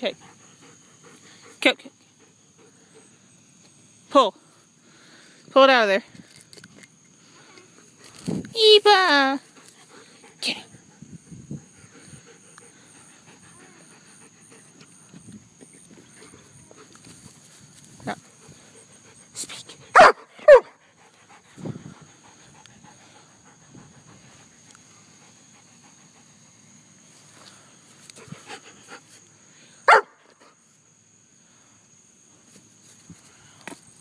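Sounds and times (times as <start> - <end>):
dog panting: 0.0 - 3.3, 9.4 - 17.0, 20.6 - 26.6, 28.1 - 29.2
dog barking: 19.9 - 20.7, 29.9 - 30.2.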